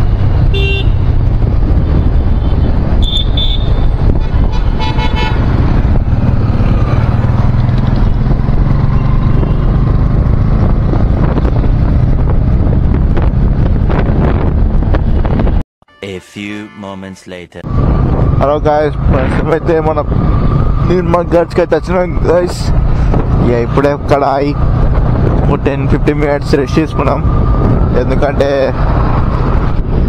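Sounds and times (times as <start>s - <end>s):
motorbike road and engine noise: 0.0s - 15.6s, 17.6s - 30.0s
vehicle horns tooting: 0.5s - 1.0s, 3.0s - 5.6s.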